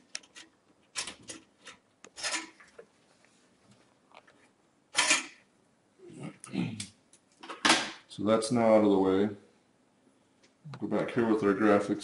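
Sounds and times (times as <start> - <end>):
metallic clicks and scrapes: 0.1 - 2.7, 5.0 - 5.4.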